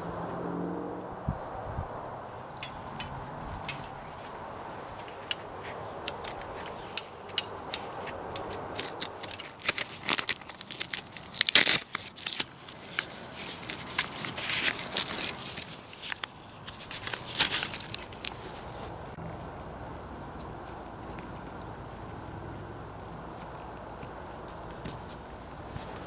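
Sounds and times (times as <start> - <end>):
metal tent pole clicking: 2.5 - 4.1, 5.0 - 14.8
tent fabric rustling: 8.8 - 21.2, 24.5 - 26.0.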